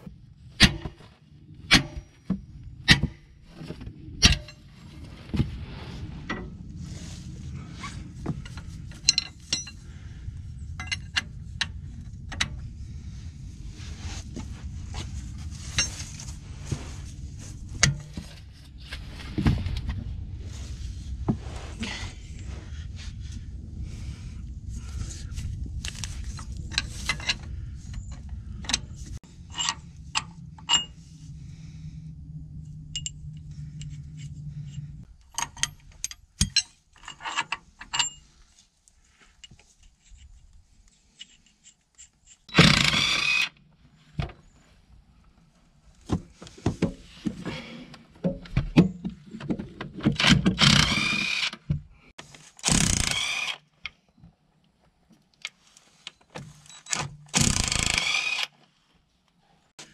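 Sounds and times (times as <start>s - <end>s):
low steady hum: 0.0s - 50.0s
wrenches clinking on bolts: 35.3s - 38.2s.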